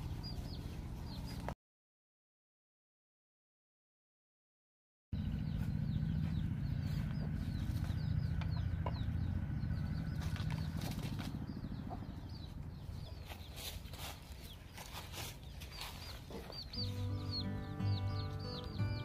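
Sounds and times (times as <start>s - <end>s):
low rumble: 5.2s - 13.2s.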